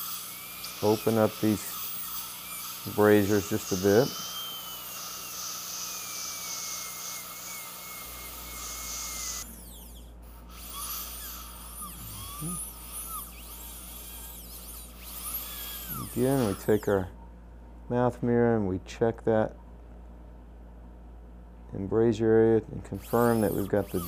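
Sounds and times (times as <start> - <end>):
dental drill whining: 0.0 - 17.1, 22.9 - 24.0.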